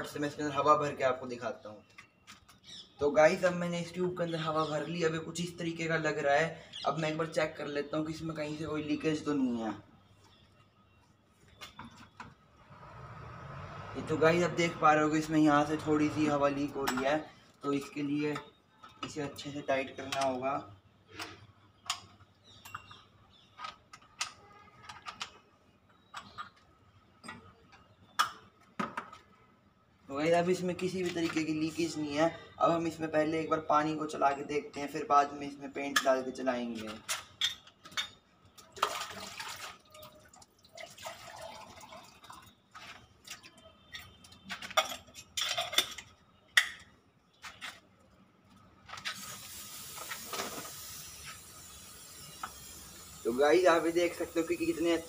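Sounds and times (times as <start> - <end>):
water splashing into metal cup: 38.7 - 42.5
spray gun hissing: 49.2 - 55.0.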